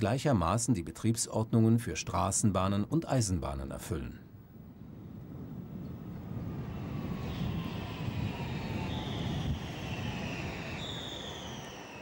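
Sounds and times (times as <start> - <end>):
high whine sliding down: 6.0 - 12.0
tram wheels rumbling on rails: 6.0 - 12.0.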